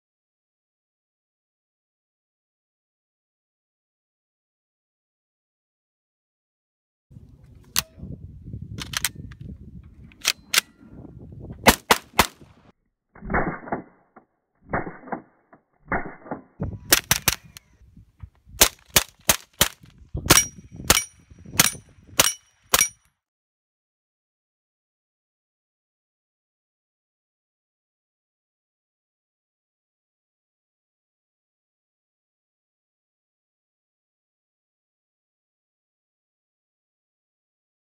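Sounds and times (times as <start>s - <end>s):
suppressed gunshots: 11.6s - 12.4s, 15.9s - 17.6s.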